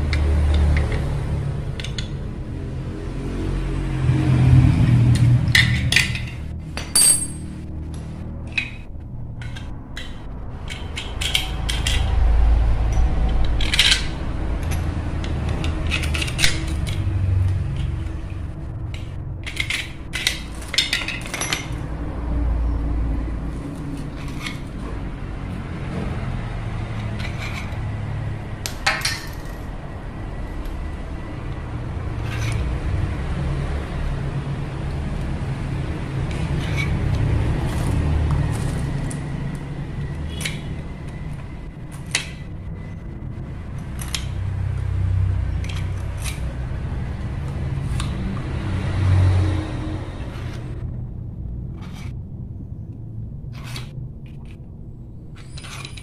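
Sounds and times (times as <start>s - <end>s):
metal and plastic parts clinking: 0.1s - 2.3s, 5.1s - 12.3s, 12.9s - 21.9s, 23.5s - 24.9s, 26.9s - 27.8s, 28.6s - 29.7s, 36.3s - 43.0s, 43.8s - 44.4s, 45.6s - 46.6s, 55.3s - 56.0s
steady low rumble: 1.1s - 48.9s, 49.5s - 55.4s.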